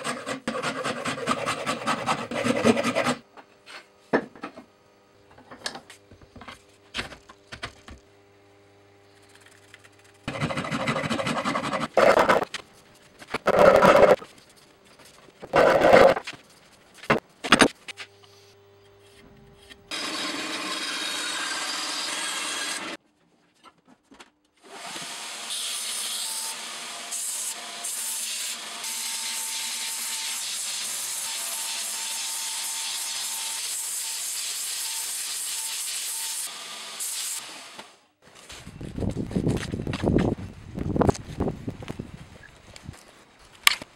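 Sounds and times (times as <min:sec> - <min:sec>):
belt sander sanding wood: 0:00.0 - 0:03.2, 0:10.2 - 0:12.5.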